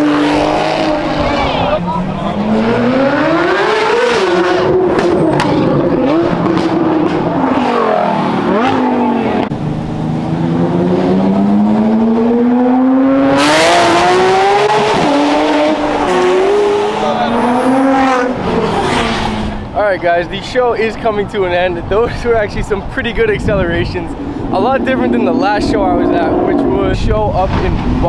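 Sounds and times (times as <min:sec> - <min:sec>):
sports cars accelerating past: 0:00.0 - 0:19.7.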